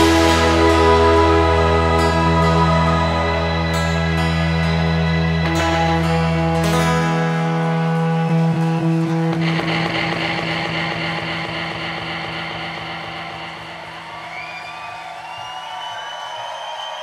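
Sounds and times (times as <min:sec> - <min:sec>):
rock band final chord ringing: 0:00.0 - 0:07.3.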